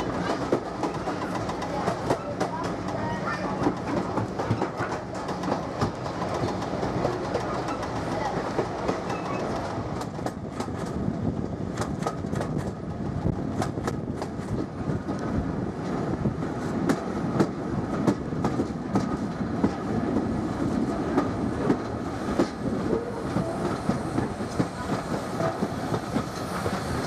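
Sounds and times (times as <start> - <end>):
wheels clicking over rail joints: 0.0 - 11.0
train rolling rumble: 0.0 - 27.0.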